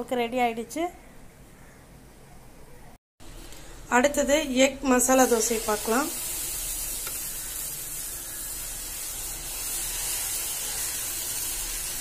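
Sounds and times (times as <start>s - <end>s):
batter sizzling on a hot pan: 4.9s - 12.0s.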